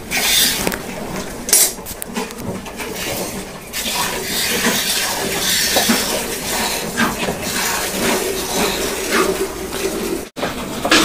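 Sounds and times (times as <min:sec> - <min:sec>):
milk squirting into metal bucket: 0:01.8 - 0:10.3.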